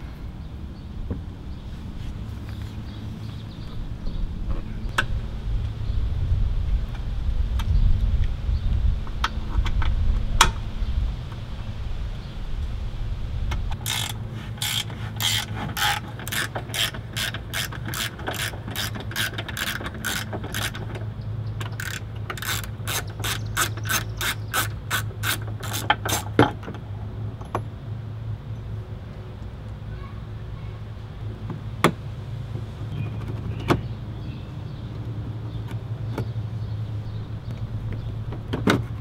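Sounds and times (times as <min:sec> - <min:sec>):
ratchet wrench clicking: 0:13.8 - 0:21.0, 0:21.6 - 0:26.4.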